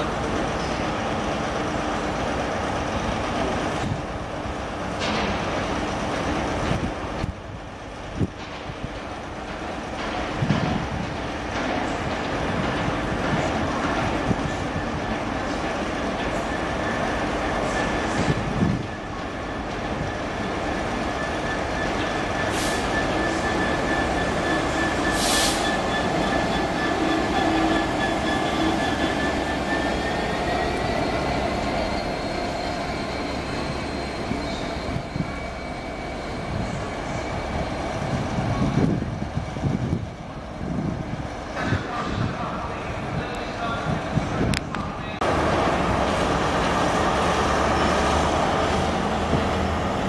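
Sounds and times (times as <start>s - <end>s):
diesel locomotive engines rumbling: 0.0s - 50.0s
wheels squealing on rails: 9.2s - 44.5s, 45.2s - 50.0s
brief hisses: 25.2s - 25.7s.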